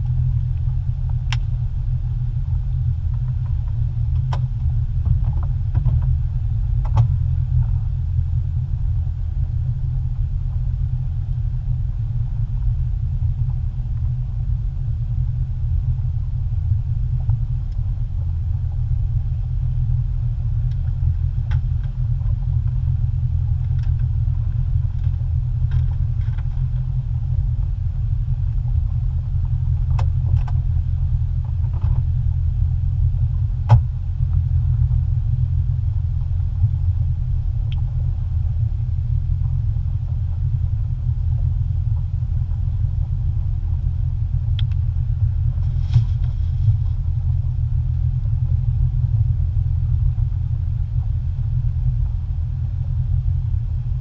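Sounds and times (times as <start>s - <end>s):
boat engine rumbling: 0.0s - 54.0s.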